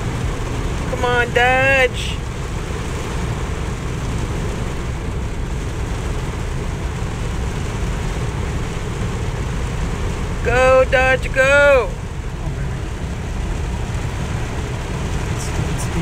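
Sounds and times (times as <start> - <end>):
truck rumble in cab: 0.0 - 10.6.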